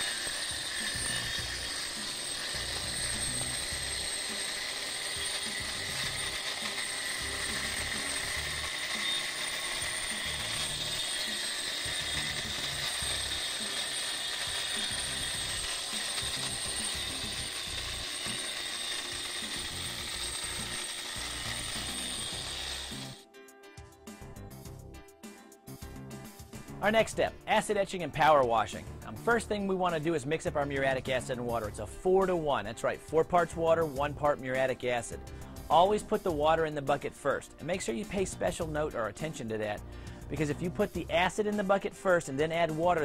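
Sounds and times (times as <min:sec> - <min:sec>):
angle grinder grinding concrete: 0:00.0 - 0:23.3, 0:33.1 - 0:43.0.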